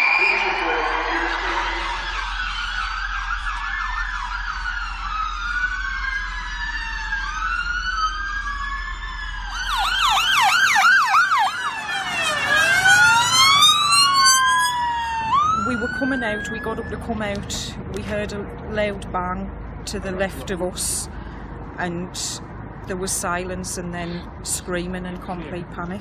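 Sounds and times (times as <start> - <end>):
fast siren yelp: 0.0 - 17.0
sirens wailing: 0.0 - 17.8.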